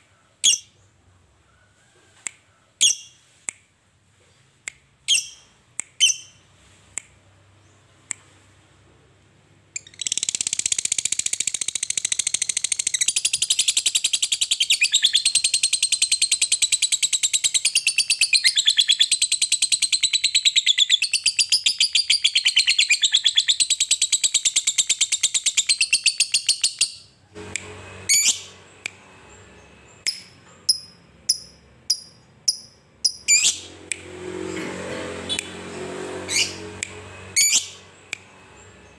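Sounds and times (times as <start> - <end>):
sharp bird chirps: 9.7 - 27.2, 28.1 - 33.7, 36.3 - 38.9
bird chattering trill: 28.1 - 28.5, 30.0 - 33.7.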